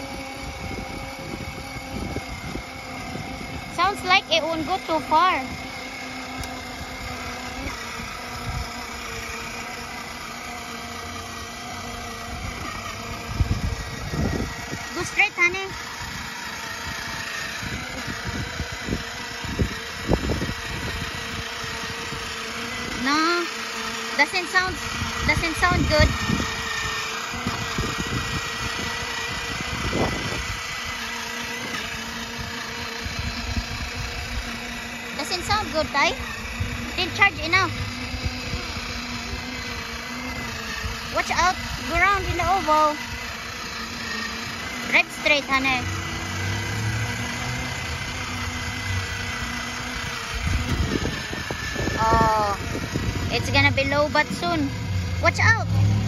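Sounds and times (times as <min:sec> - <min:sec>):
plastic wheels rolling on concrete: 0:00.0 - 0:56.0
small electric motor whine: 0:00.0 - 0:56.0
person speaking: 0:40.9 - 0:43.1, 0:44.8 - 0:46.1, 0:52.0 - 0:55.8.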